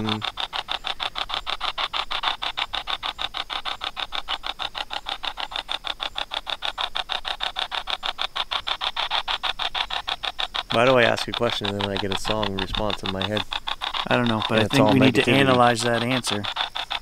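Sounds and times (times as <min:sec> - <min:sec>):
chopping static and radio fragments: 0:10.2 - 0:17.0.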